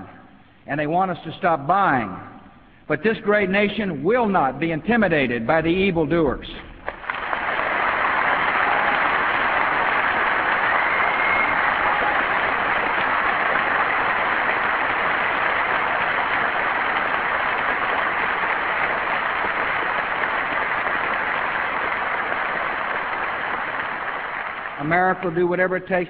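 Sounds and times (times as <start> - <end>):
audience applauding: 6.8 - 25.4.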